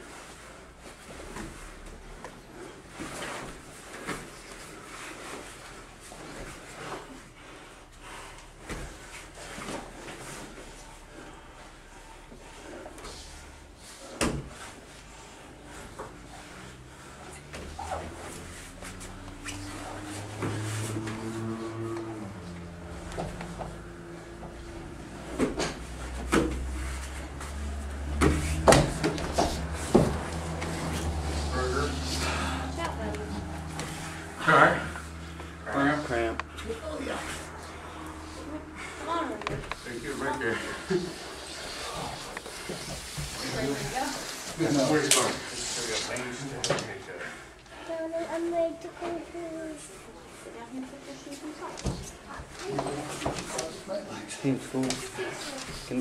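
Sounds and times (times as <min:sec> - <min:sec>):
steady low hum: 0:01.0 - 0:44.6.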